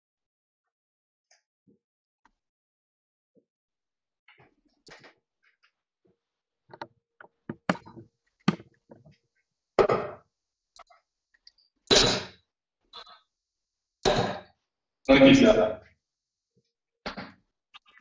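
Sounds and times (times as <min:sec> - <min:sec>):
darts striking dartboard: 0:14.0 - 0:14.4.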